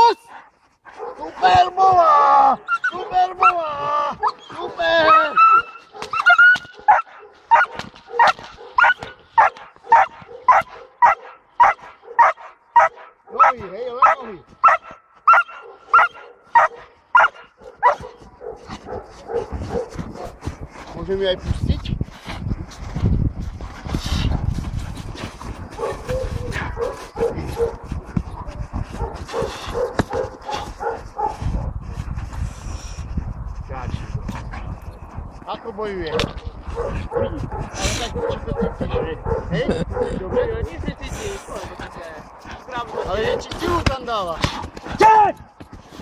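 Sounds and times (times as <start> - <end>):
dog barking: 0.9 - 1.3, 5.9 - 20.4, 25.8 - 27.8, 29.0 - 31.7, 36.1 - 40.6, 42.8 - 43.5.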